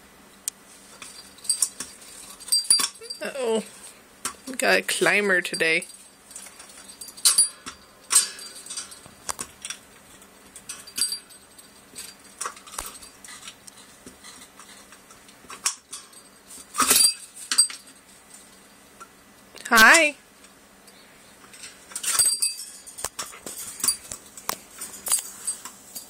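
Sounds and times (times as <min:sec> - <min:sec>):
bird toy chain and bell jangling: 0:01.0 - 0:03.4, 0:05.4 - 0:09.1, 0:10.7 - 0:13.2, 0:22.0 - 0:24.2.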